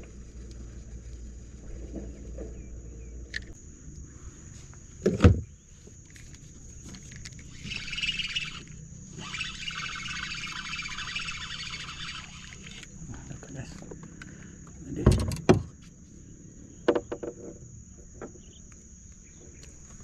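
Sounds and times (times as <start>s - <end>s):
fishing reel whirring: 7.2s - 13.0s.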